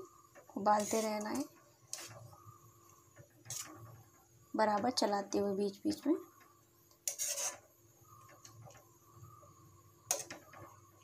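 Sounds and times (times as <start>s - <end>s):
steel spoon scraping a pan: 0.6s - 2.4s, 3.4s - 4.2s, 7.0s - 8.7s, 10.0s - 10.8s.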